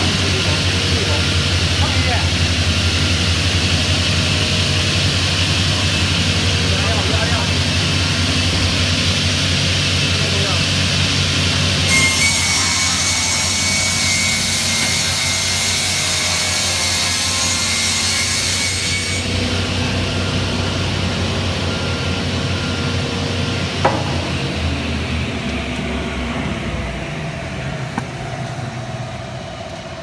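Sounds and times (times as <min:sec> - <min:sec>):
saw running without load: 0:00.0 - 0:22.3
sharp knock: 0:23.8 - 0:24.4.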